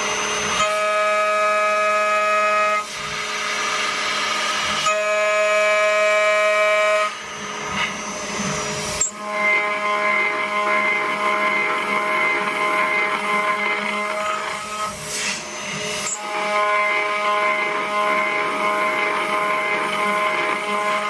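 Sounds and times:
router spindle whining: 0.0 - 21.0
cutting hiss: 13.6 - 20.4.

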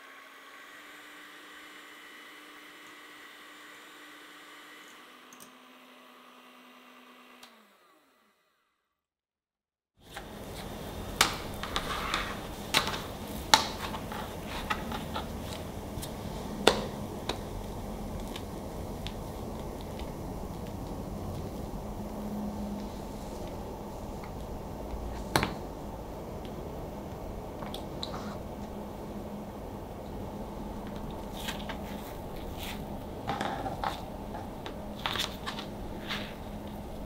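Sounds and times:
electric hand mixer whipping: 0.0 - 8.7
steady hiss: 10.0 - 37.0.

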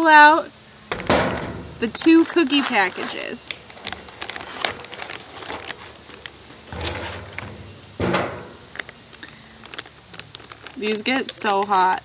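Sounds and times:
foil and plastic pouches rustling: 0.9 - 12.0
crackle of small clicks: 8.7 - 12.0.

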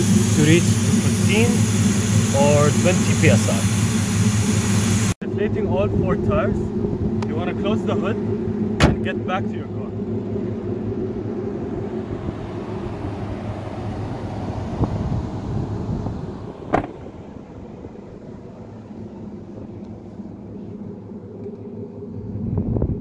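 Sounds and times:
pickup engine idling: 0.0 - 22.9
vehicle door slamming: 8.7 - 9.1, 16.7 - 17.0.

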